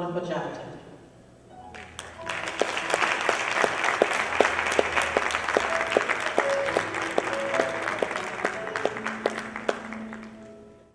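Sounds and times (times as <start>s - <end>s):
music playing: 1.5s - 10.9s
audience applauding: 1.8s - 10.5s.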